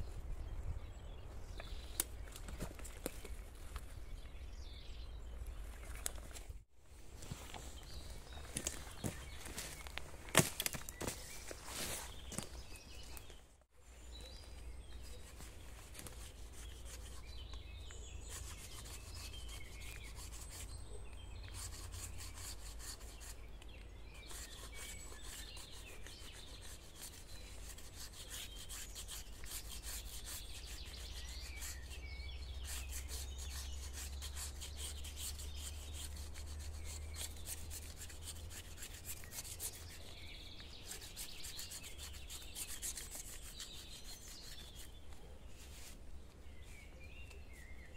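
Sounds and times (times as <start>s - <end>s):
small birds chirping: 0.0s - 47.9s
rubbing and scraping: 14.8s - 20.8s, 21.4s - 23.5s, 24.2s - 46.8s.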